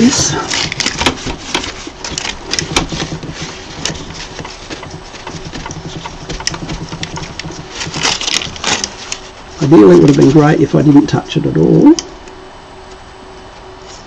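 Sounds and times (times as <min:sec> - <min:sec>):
cloth rubbing and rustling: 0:00.0 - 0:10.8.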